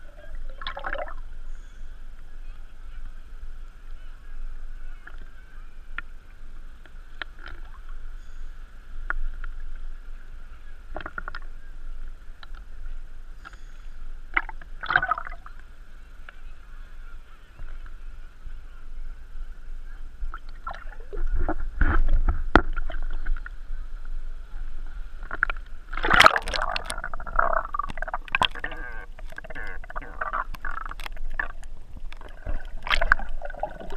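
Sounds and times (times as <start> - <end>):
muffled water sloshing: 0.0 - 1.6, 14.3 - 15.7, 20.0 - 33.9
steady high hum: 0.0 - 33.9.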